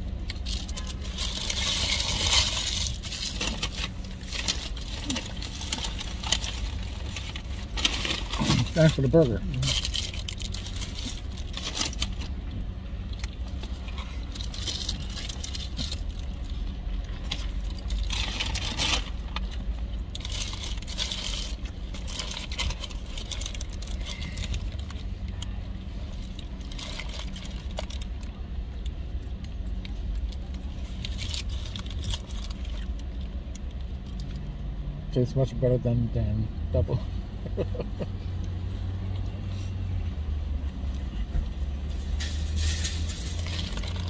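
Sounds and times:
paper wrappers rustling: 0.3 - 12.3, 17.2 - 25.1, 26.1 - 28.3, 42.0 - 44.0.

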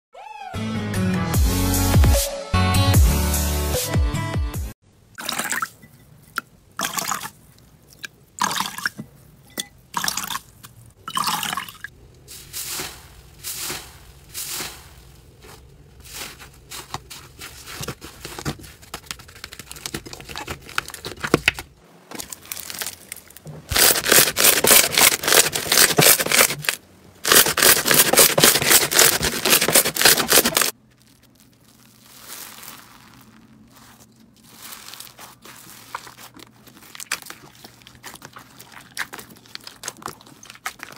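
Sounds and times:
rapid slime crackling: 12.5 - 21.3, 22.3 - 40.9.

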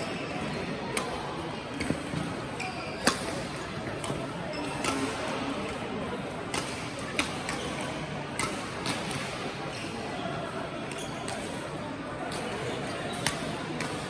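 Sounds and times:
murmur of voices: 0.0 - 14.0
badminton rackets striking shuttlecocks: 0.9 - 5.8, 6.4 - 9.5, 12.2 - 14.0.

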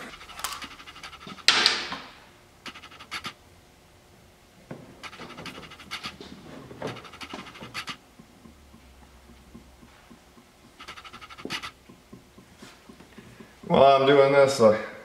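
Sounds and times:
sharp scraping rasp: 0.0 - 1.5, 2.7 - 3.4, 5.0 - 6.2, 6.9 - 8.0, 10.8 - 11.8.

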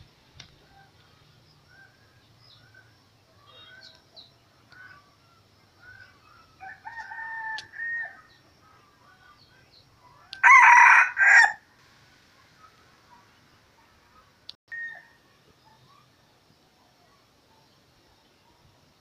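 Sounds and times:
small birds chirping: 0.0 - 7.2, 8.0 - 10.4, 12.3 - 19.0
rooster crowing: 6.6 - 8.3, 10.3 - 11.6.

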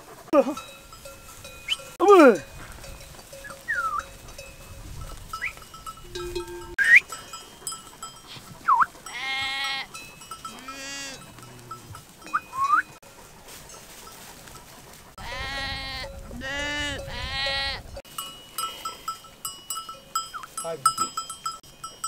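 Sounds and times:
small bells ringing: 0.4 - 14.7, 17.0 - 22.0
whistle-like gliding notes: 3.4 - 4.2, 5.4 - 7.6, 8.3 - 9.0, 12.2 - 13.0
sheep bleating: 9.0 - 9.9, 10.5 - 11.8, 15.2 - 17.8.

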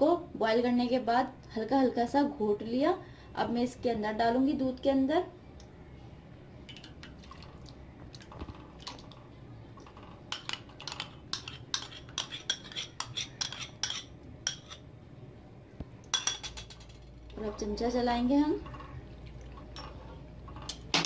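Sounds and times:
metal spoon scraping glass bowl: 10.3 - 14.8.

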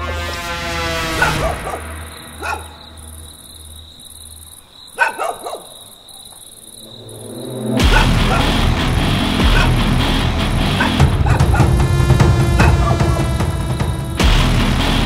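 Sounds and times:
crickets chirring: 0.2 - 14.6
dog barking: 1.1 - 3.1, 4.9 - 6.4, 7.8 - 8.6, 9.4 - 9.8, 10.7 - 11.7, 12.6 - 13.8.

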